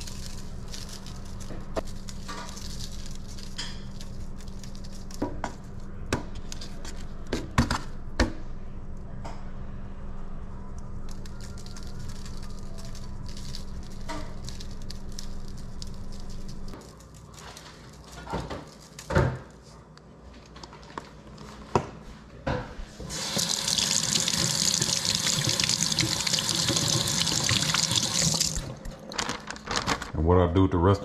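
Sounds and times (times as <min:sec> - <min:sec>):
low hum: 0:07.9 - 0:17.5.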